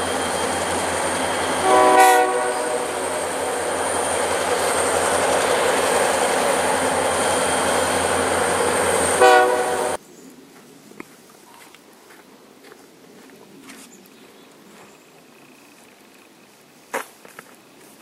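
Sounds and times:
locomotives rumbling past: 0:00.0 - 0:10.0
air horn blast: 0:01.5 - 0:03.6, 0:09.1 - 0:10.0
faint ticks: 0:15.2 - 0:16.5.

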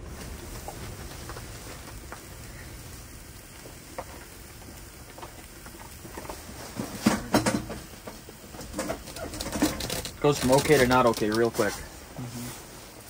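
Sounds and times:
sausages sizzling in a pan: 0:00.0 - 0:13.0
sharp clicks and knocks: 0:03.6 - 0:11.6.

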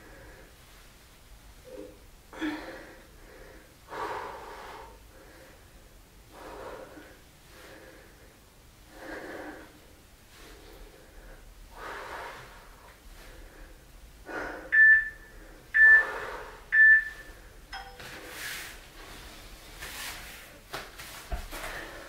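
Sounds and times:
man breathing hard: 0:02.3 - 0:16.7.

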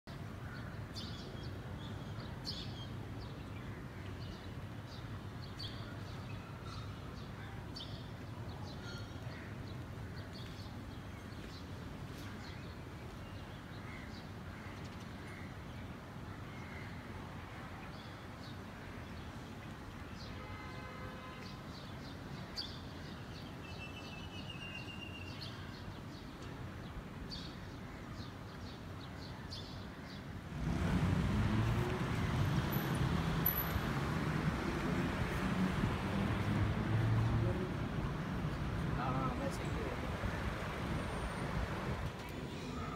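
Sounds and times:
distant city hum: 0:30.4 - 0:42.9.

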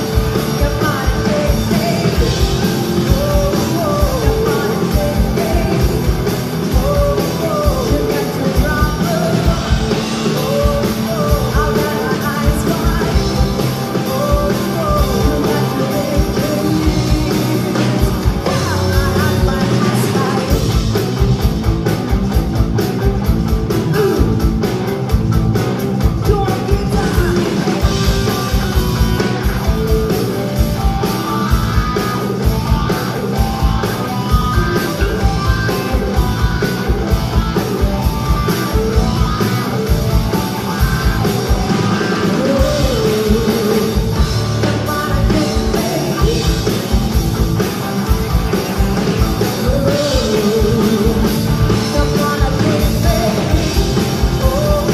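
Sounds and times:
live rock band playing: 0:00.0 - 0:54.9
steady drum beat: 0:00.0 - 0:54.9
woman singing: 0:00.4 - 0:20.8, 0:26.2 - 0:28.6, 0:42.2 - 0:46.9, 0:49.5 - 0:54.9.

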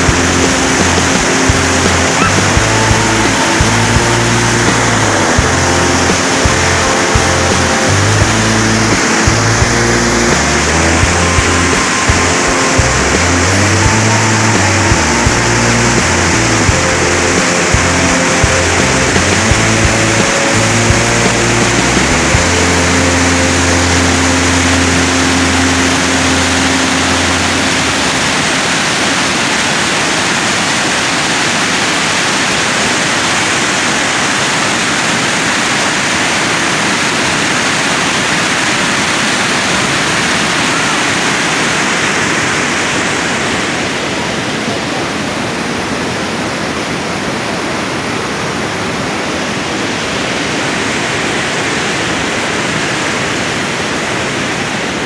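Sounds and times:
held music tones: 0:00.0 - 0:29.6
waterfall rushing over boulders: 0:00.0 - 0:55.0.

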